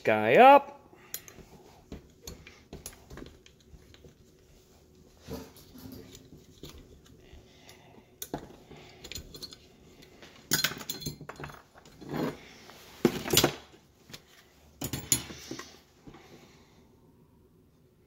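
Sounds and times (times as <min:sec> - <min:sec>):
screws and screwdriver clinking: 0:05.4 - 0:12.4, 0:14.8 - 0:15.8.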